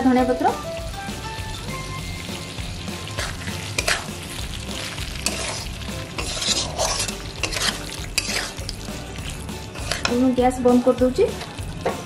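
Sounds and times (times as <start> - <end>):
food sizzling: 0.0 - 12.0
metal spatula scraping wok: 3.0 - 10.4.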